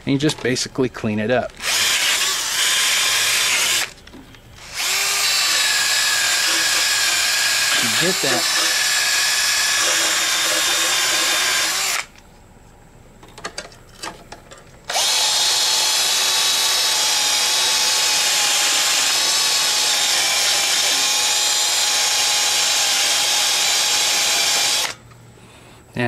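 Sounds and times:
rotary tool wire brush whine: 0:04.6 - 0:12.1.

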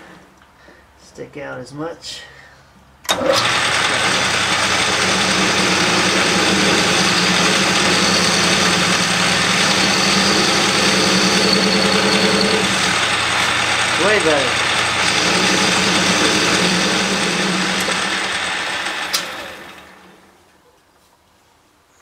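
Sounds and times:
lathe motor hum: 0:03.1 - 0:20.3.

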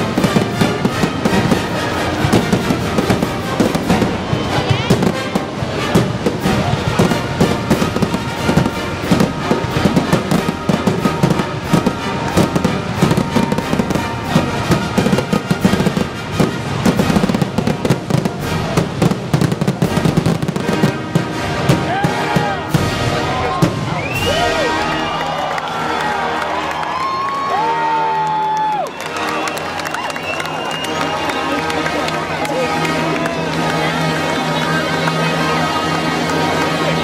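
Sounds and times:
fireworks bursting: 0:00.0 - 0:25.2
music playing: 0:00.0 - 0:37.0.

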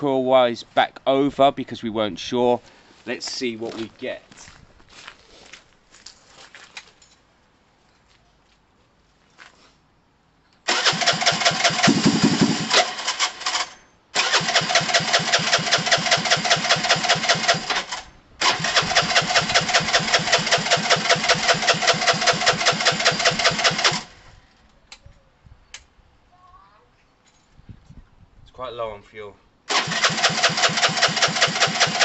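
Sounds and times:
electric starter cranking engine: 0:10.7 - 0:24.2, 0:29.7 - 0:32.0.

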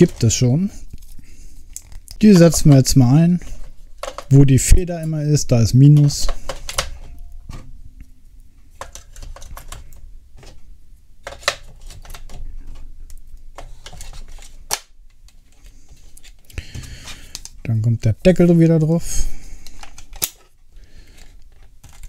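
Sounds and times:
batteries clicking into compartment: 0:04.0 - 0:04.4.

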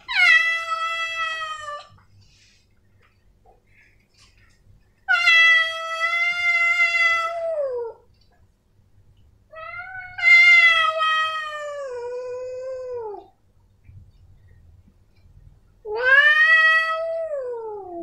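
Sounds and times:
cat meowing: 0:00.0 - 0:02.0, 0:05.1 - 0:08.0, 0:15.9 - 0:18.0.

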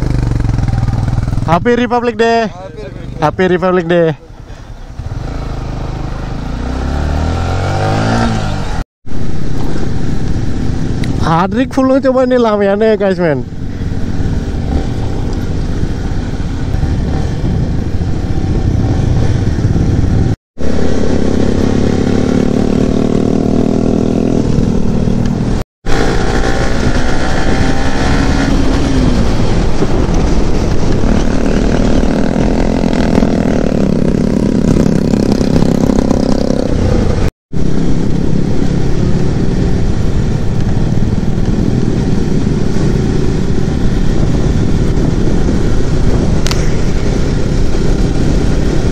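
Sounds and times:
motorcycle engine running: 0:00.0 - 0:11.9, 0:13.2 - 0:48.9
wind and road noise: 0:00.0 - 0:48.9.

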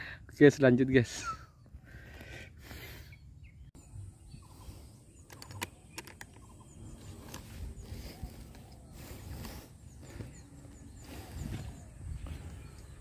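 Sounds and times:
wind: 0:00.0 - 0:13.0
high bird chirps: 0:03.0 - 0:13.0
sharp clicks: 0:05.2 - 0:06.6.

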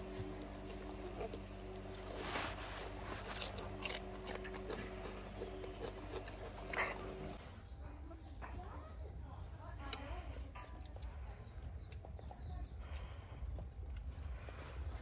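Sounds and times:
monkey crunching vegetable: 0:00.0 - 0:15.0
steady low hum: 0:00.0 - 0:15.0.

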